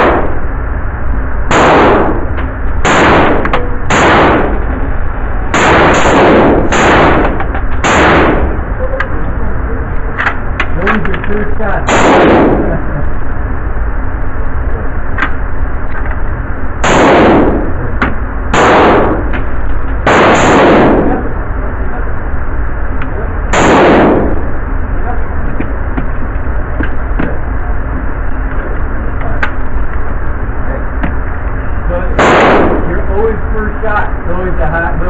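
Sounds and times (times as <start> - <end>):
echoing gunshots: 0.0 - 0.5, 1.4 - 4.7, 5.5 - 8.7, 11.8 - 13.0, 16.8 - 17.9, 18.5 - 21.3, 23.5 - 24.6, 32.1 - 33.3
steady background rumble: 0.0 - 35.0.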